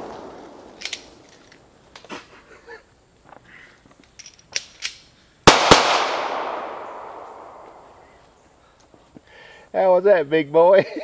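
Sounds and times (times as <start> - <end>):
light pops and cracks: 0.0 - 2.2
loud explosive blasts: 5.5 - 8.0.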